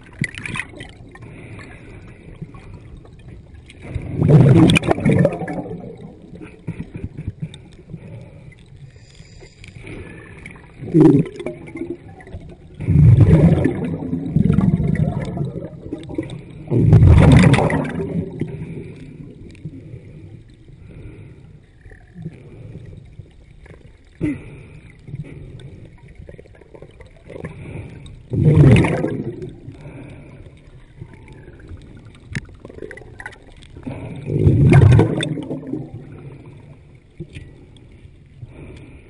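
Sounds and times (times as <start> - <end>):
underwater air bubbles: 0.0 - 39.0
low rush of water: 10.5 - 19.6, 28.3 - 36.7.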